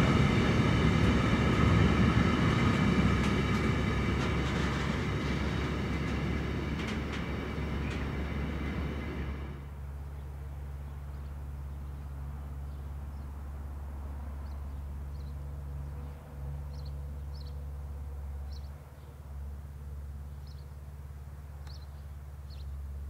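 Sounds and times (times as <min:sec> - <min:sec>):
small birds chirping: 0:14.4 - 0:16.1, 0:16.7 - 0:17.6, 0:18.5 - 0:19.2, 0:20.3 - 0:20.8, 0:21.6 - 0:22.8.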